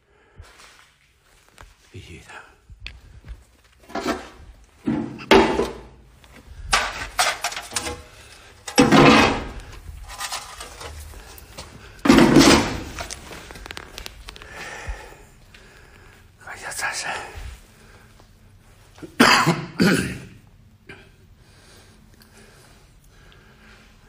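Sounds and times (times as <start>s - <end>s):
plastic boards clattering: 3.8s - 6.0s, 6.7s - 11.0s, 12.0s - 13.2s.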